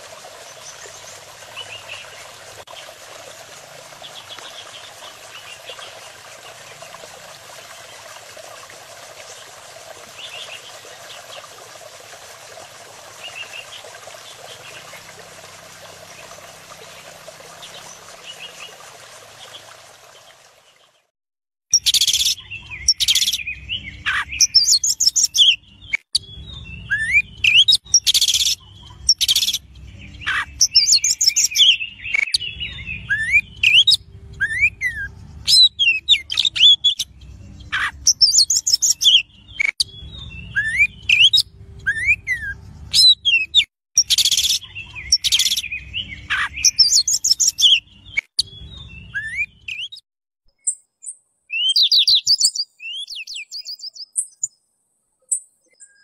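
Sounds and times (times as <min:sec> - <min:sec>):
songbirds singing: 0:00.3 - 0:02.9, 0:13.2 - 0:21.0, 0:21.7 - 0:56.0.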